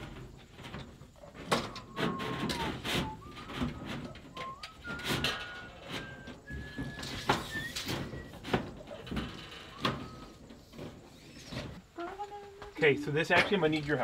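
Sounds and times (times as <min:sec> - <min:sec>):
construction knocks and clatter: 0:00.0 - 0:12.6
person whistling a tune: 0:01.9 - 0:08.5.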